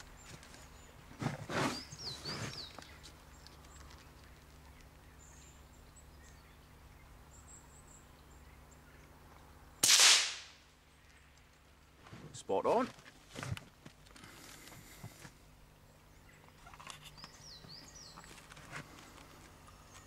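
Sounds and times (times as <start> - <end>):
silenced rifle shot: 9.8 - 10.6.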